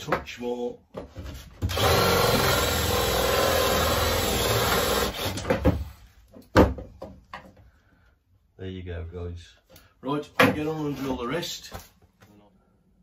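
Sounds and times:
cordless drill boring wood: 0:01.6 - 0:05.5.

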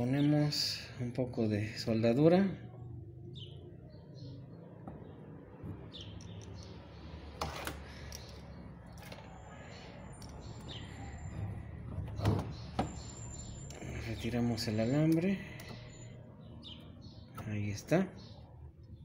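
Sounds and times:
faint bird chirps: 0:07.8 - 0:17.6.

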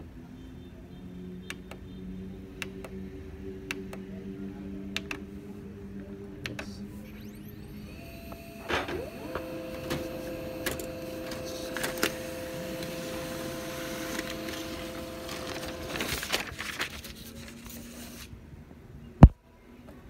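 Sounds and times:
laser printer motors humming: 0:06.4 - 0:16.2
printer clicks: 0:08.1 - 0:16.3
paper rustling: 0:08.9 - 0:18.3.

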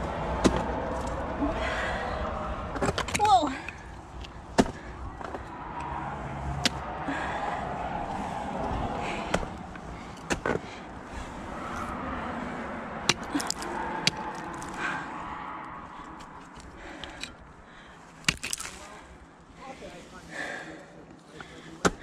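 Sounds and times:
ice axes striking ice: 0:13.0 - 0:14.8, 0:18.2 - 0:19.0, 0:21.8 - 0:22.0.

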